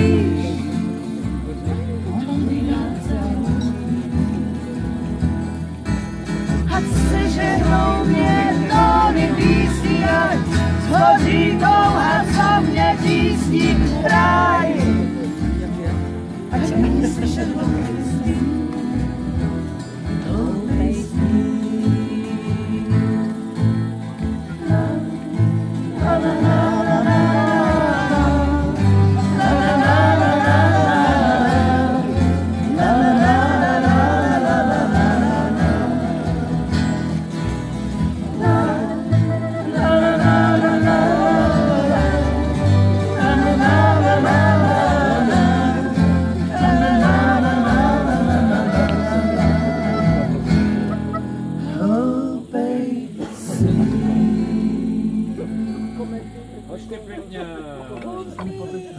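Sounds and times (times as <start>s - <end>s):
person singing: 0.0s - 5.7s, 6.6s - 15.4s, 16.5s - 37.4s, 38.1s - 50.5s
plucked double bass: 0.0s - 51.9s, 53.4s - 58.4s
strummed acoustic guitar: 0.0s - 52.5s, 53.1s - 58.0s.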